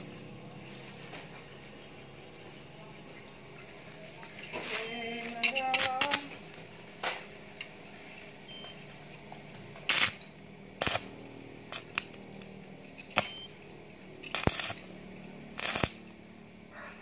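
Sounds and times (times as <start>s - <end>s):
arc welding bursts: 4.8s - 6.6s, 9.7s - 13.6s, 14.2s - 16.4s.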